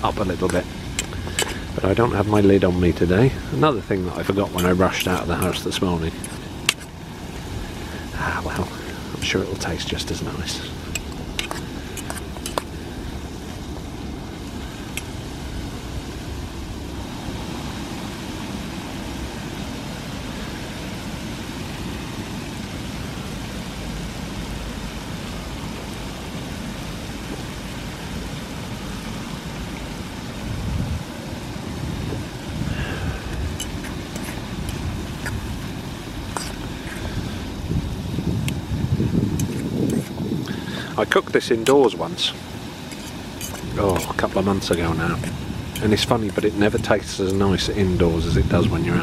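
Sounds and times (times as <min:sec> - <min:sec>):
fork scraping in metal pan: 0:01.0 - 0:01.7, 0:04.5 - 0:07.0, 0:10.8 - 0:12.7, 0:33.6 - 0:35.4, 0:39.4 - 0:40.1, 0:42.9 - 0:47.7
wind rumble on microphone: 0:24.9 - 0:41.2, 0:42.6 - 0:49.0.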